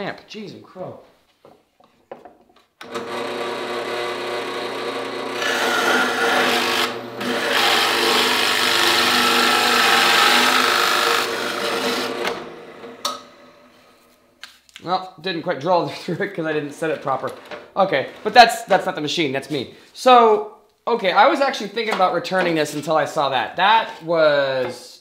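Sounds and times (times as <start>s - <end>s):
drill bit boring into wood: 2.8s - 12.5s
drill press running: 2.8s - 13.1s.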